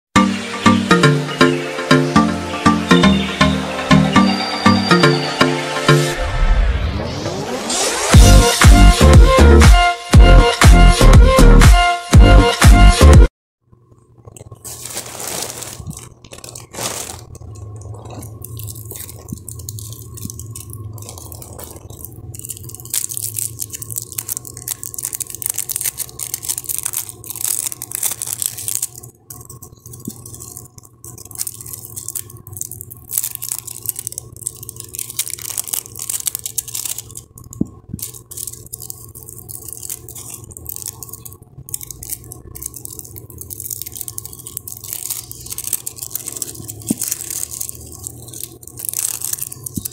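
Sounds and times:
plastic wrapping crinkling and tearing: 14.2 - 49.9.

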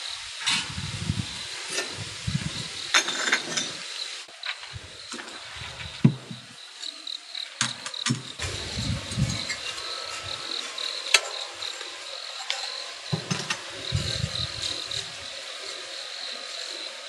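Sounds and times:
crickets chirping: 0.0 - 17.0
ceramic cups clinking: 12.4 - 15.1.

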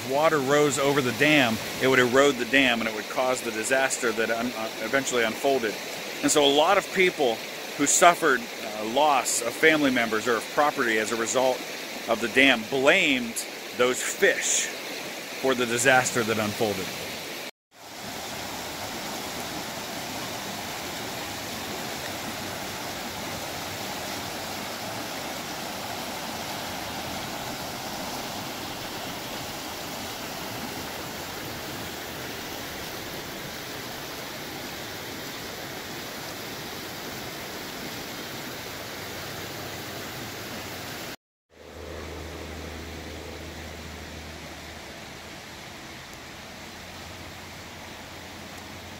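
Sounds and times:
river rapids rushing over rocks: 0.0 - 37.0.

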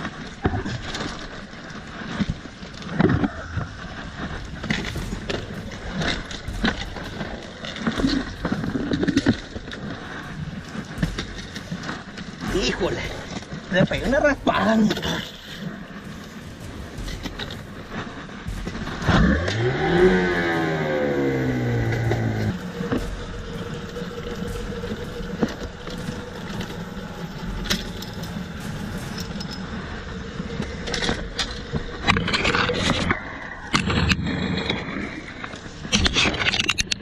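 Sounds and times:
gear knocking and scraping in boat: 0.0 - 37.0
small outboard motor revving: 18.5 - 27.8.

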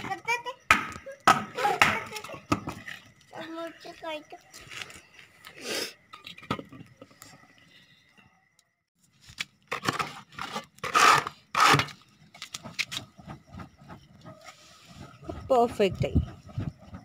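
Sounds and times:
scraping and crunching in metal pan: 9.7 - 12.0.

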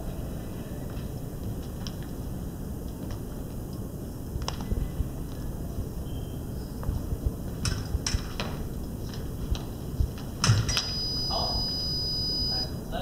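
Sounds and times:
scoring box high beep: 10.9 - 12.7.

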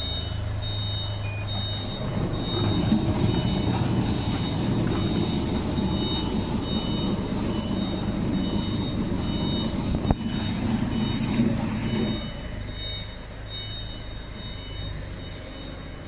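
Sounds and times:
motor and conveyor hum: 0.0 - 16.0
high-pitched whine and hiss: 3.4 - 16.0.

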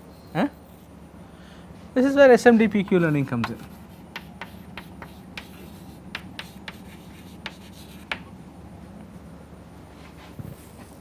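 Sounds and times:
low steady hum: 0.0 - 11.0
chalk tapping and scratching: 2.7 - 8.3.

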